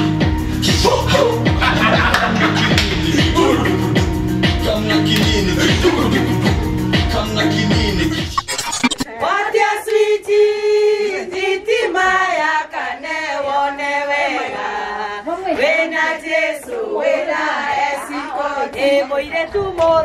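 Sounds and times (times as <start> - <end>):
women singing in chorus: 9.1 - 20.0.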